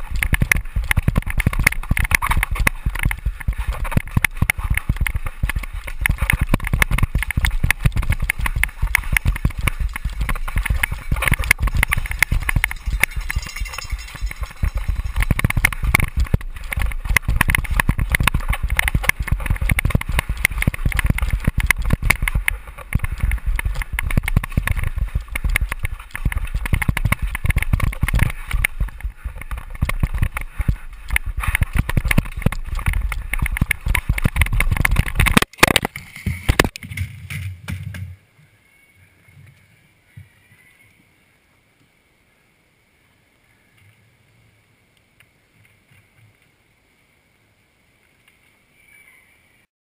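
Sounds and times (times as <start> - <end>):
mountain bike rattling over rocks: 0.0 - 38.0.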